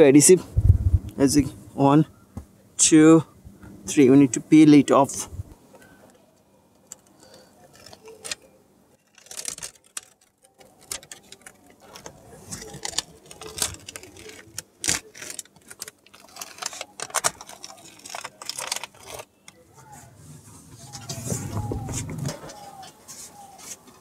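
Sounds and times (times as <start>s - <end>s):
foil sheet crinkling and crackling: 6.9s - 8.4s, 9.0s - 19.6s
paper backing peeling off tape: 6.9s - 23.8s.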